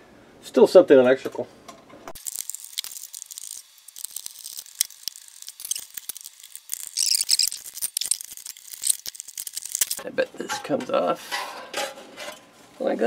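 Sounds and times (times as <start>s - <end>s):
screwdriver clicking and scraping: 4.2s - 10.0s.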